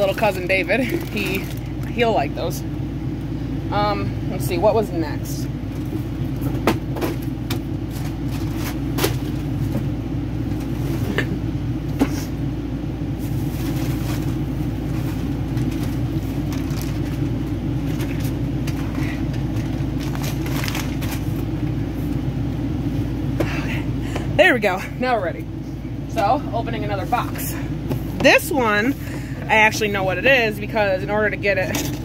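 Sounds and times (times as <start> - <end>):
low mechanical hum: 0.0 - 32.0
clicks and rustling of rummaging: 5.7 - 9.8, 13.3 - 21.5, 31.6 - 32.0.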